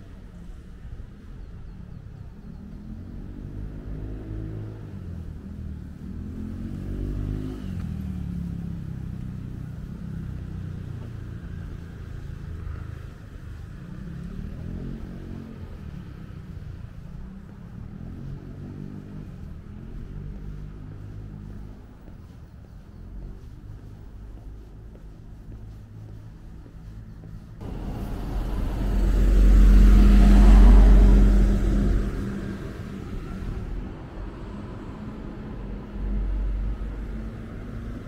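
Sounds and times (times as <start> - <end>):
motor vehicles passing: 2.4 - 38.0
steady low rumble: 15.5 - 38.0.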